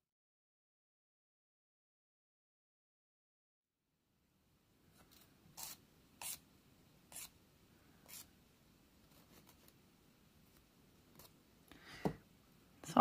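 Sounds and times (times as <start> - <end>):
nail file scratching plastic: 5.6 - 6.4, 7.1 - 7.3.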